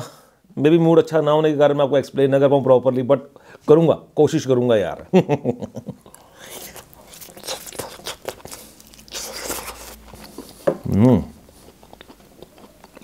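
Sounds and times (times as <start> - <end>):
man chewing chicken: 6.0 - 13.0.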